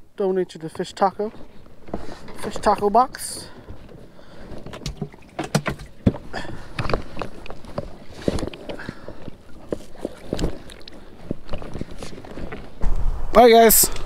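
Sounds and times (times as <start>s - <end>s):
water splashing and dripping: 4.7s - 6.1s.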